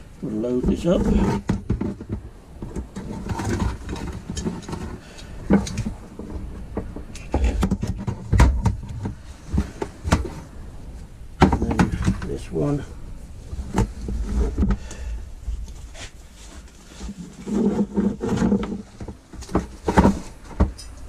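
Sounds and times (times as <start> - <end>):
low steady rumble: 0.0 - 21.0
sharp knocks: 11.4 - 12.4.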